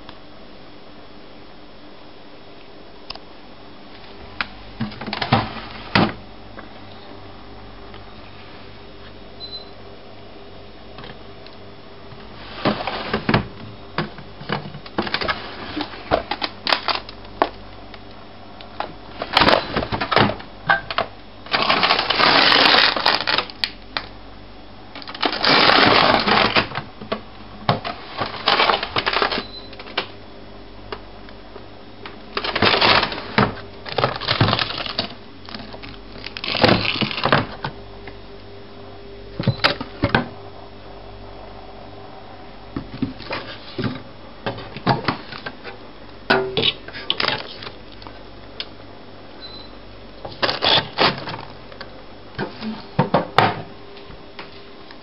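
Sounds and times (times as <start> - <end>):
plastic drawers pulled out: 12.4 - 13.6, 21.5 - 23.5, 25.0 - 26.8, 27.7 - 30.0, 32.4 - 37.6
frozen plastic bags clacking: 12.5 - 17.6, 18.8 - 24.1, 25.0 - 30.1, 32.1 - 37.6, 50.3 - 51.5.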